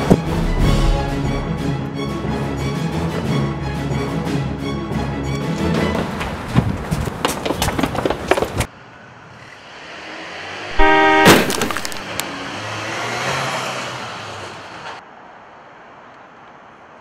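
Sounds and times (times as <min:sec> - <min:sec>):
music: 0:00.0 - 0:06.5
vehicle engine and tyre noise: 0:05.6 - 0:17.0
loud sharp impact: 0:10.7 - 0:12.0
vehicle horn honk: 0:10.7 - 0:12.0.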